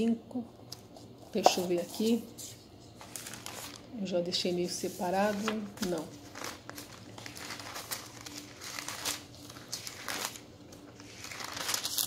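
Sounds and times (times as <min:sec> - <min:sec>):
faint steady hum: 0:00.0 - 0:12.0
thin pages rustling: 0:01.8 - 0:03.9, 0:04.8 - 0:12.0.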